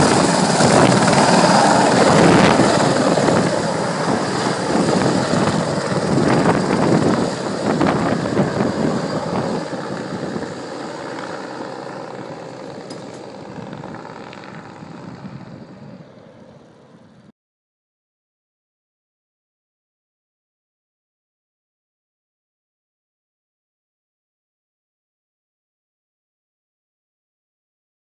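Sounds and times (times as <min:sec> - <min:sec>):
helicopter flying away: 0:00.0 - 0:17.3.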